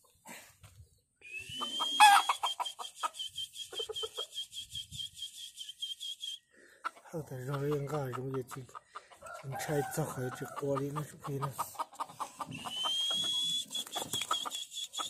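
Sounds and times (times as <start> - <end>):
rooster clucking: 1.5 - 4.4, 6.8 - 15.0.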